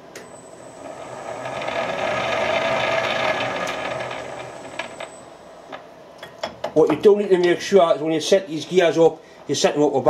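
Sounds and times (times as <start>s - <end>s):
lathe gears whirring and rattling: 0.3s - 5.4s.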